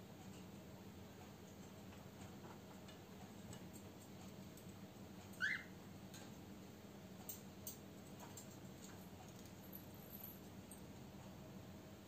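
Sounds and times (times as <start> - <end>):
cockatiel chirp: 5.4 - 5.7.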